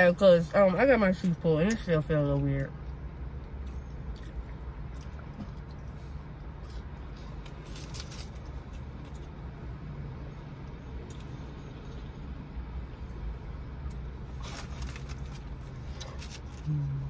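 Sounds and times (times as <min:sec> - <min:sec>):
car interior hum: 0:00.0 - 0:17.0
food wrappers crackling: 0:06.6 - 0:09.2, 0:14.3 - 0:16.7.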